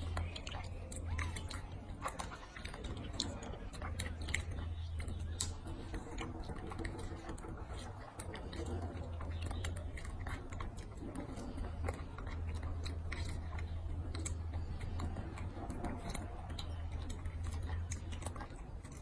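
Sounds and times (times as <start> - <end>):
monkey chewing and smacking: 0.0 - 19.0.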